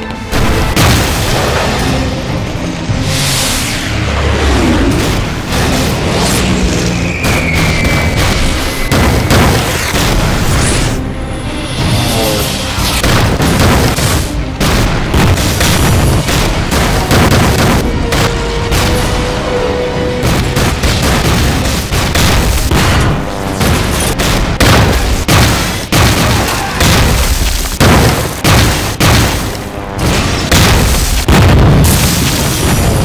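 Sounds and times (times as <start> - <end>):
background music: 0.0 - 33.0
shell explosions: 0.3 - 2.0, 7.1 - 10.6, 12.9 - 19.4, 20.1 - 33.0
rifle and machine-gun fire: 7.2 - 10.5, 13.0 - 19.2, 20.1 - 33.0.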